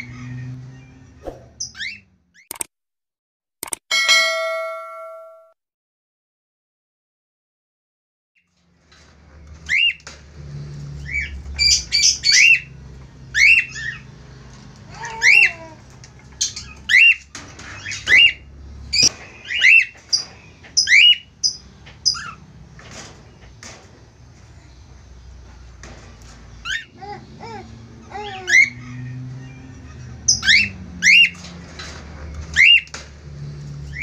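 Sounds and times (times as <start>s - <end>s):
cockatiels calling: 1.6s - 2.0s, 11.0s - 14.1s, 14.9s - 22.4s, 26.6s - 31.4s, 32.5s - 32.9s.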